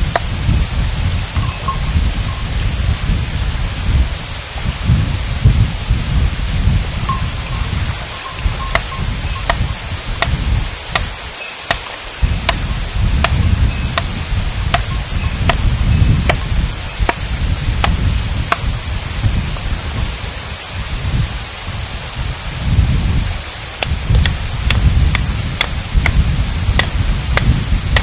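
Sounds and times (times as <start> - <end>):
low gusting rumble: 0.0 - 11.4, 12.1 - 28.0
hammer striking rock: 8.7 - 9.6, 10.2 - 11.1, 11.7 - 13.4, 14.0 - 15.7, 17.1 - 18.7, 26.8 - 28.0.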